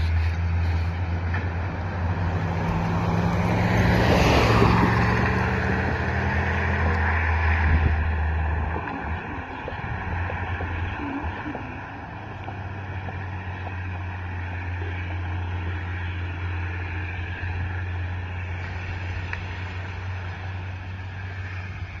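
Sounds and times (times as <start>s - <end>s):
low engine hum: 0.0s - 22.0s
wind buffeting microphone: 0.0s - 22.0s.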